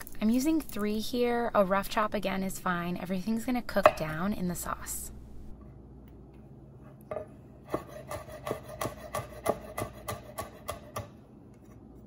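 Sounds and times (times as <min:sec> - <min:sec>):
knife chopping on wooden board: 0:07.1 - 0:11.1.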